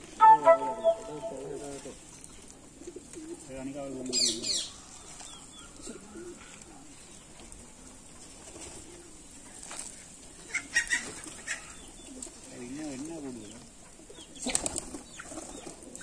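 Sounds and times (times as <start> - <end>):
pigeons cooing: 0.2 - 16.0
wings flapping: 9.6 - 12.4, 14.4 - 16.0.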